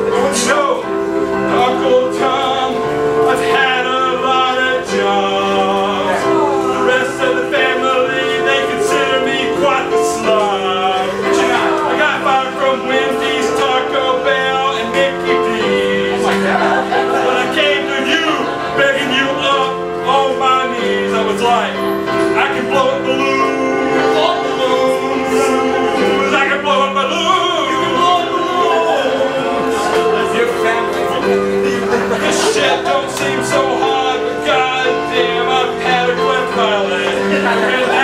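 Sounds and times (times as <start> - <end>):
instrument playing held chords: 0.0 - 38.0
man singing: 0.0 - 38.0.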